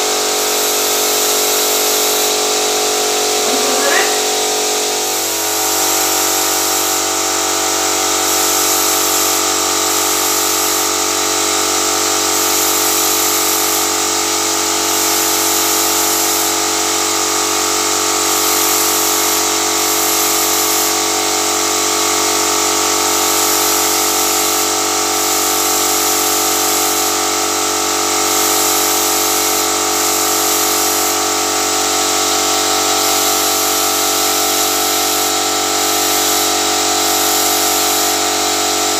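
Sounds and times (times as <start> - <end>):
spray gun hissing: 30.0 - 31.1, 34.9 - 38.2.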